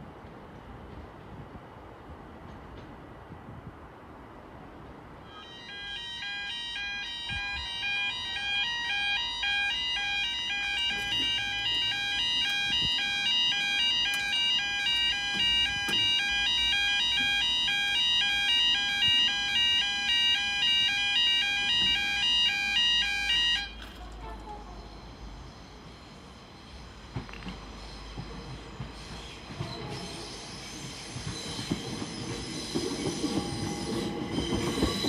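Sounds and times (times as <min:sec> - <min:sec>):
level crossing warbling alarm: 0:05.4 - 0:23.7.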